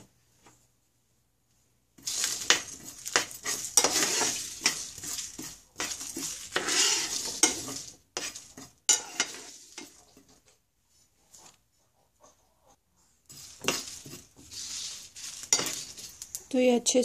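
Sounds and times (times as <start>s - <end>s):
metal spoon scraping pan: 2.0s - 10.4s, 13.2s - 16.4s
spices rattling in pan: 2.0s - 10.4s, 13.3s - 16.5s.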